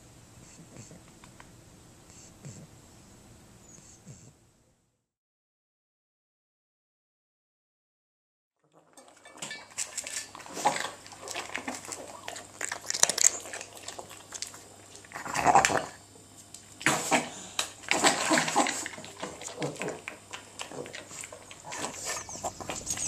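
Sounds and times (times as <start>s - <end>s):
dog snuffling and eating: 0.4s - 1.5s, 2.1s - 2.7s, 8.7s - 23.0s
metal bowl clinking: 8.9s - 10.4s.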